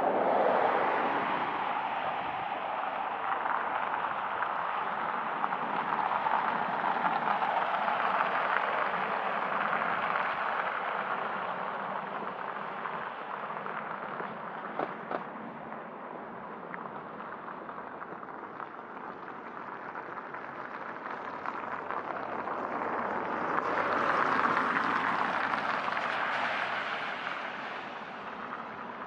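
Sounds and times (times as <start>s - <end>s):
car tyres hissing on wet road: 0.2s - 15.1s, 16.3s - 29.0s.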